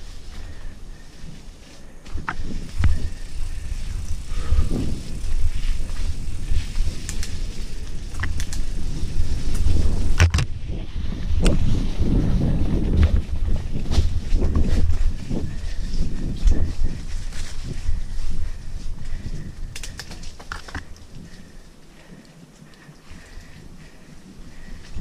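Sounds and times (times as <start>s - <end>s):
bike chain and frame clattering: 0.0s - 10.2s
wind on microphone: 0.0s - 21.6s
bike tyres rumbling on dirt: 0.0s - 25.0s.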